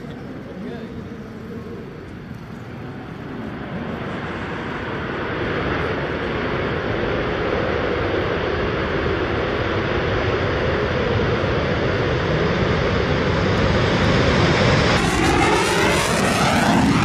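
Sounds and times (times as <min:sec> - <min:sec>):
jet engines roaring: 0:00.0 - 0:17.0.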